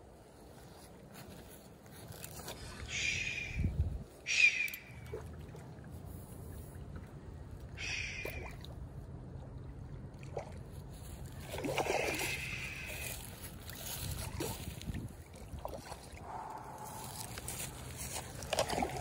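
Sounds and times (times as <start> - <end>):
steady low rumble: 12.3 - 19.0
footsteps on grass: 13.0 - 15.0, 16.3 - 19.0.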